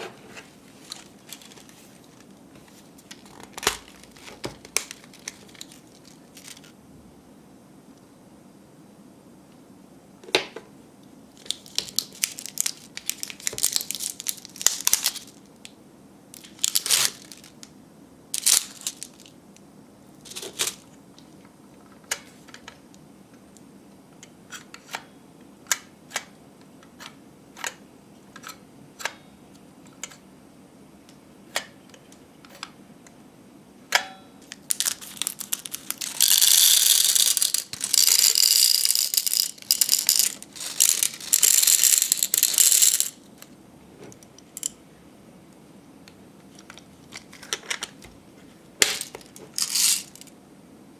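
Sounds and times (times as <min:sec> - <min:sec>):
cellophane packets crinkling: 0:00.9 - 0:02.3, 0:03.0 - 0:06.7, 0:11.4 - 0:15.5, 0:16.4 - 0:17.7, 0:18.4 - 0:19.4, 0:20.2 - 0:20.9, 0:34.4 - 0:43.2, 0:48.9 - 0:50.3
mints rattling into plastic machine: 0:34.7 - 0:43.2, 0:48.8 - 0:50.2.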